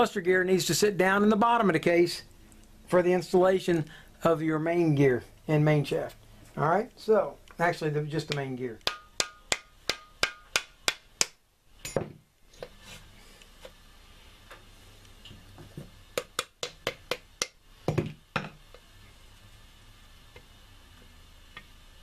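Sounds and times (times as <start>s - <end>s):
hammer tapping metal: 8.3s - 12.1s.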